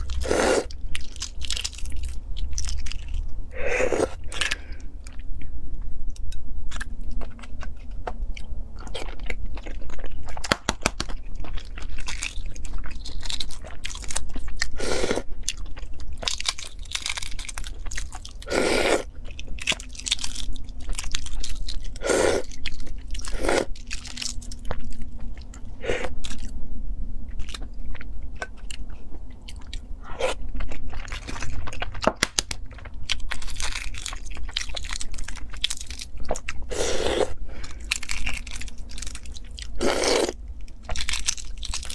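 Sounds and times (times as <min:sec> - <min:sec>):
low hum: 0:00.0 - 0:10.4, 0:11.0 - 0:41.9
eggshells crackling being peeled: 0:37.6 - 0:41.9.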